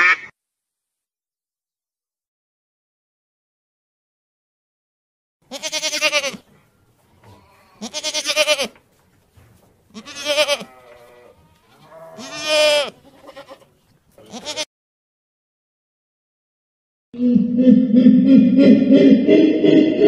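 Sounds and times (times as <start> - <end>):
goat bleating: 5.5 - 6.5, 7.2 - 8.8, 9.9 - 14.7.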